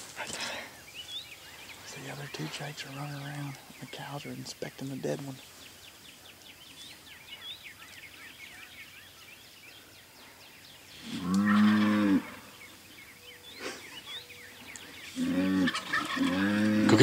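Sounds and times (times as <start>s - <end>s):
cow mooing: 11.2s - 12.5s, 15.2s - 17.0s.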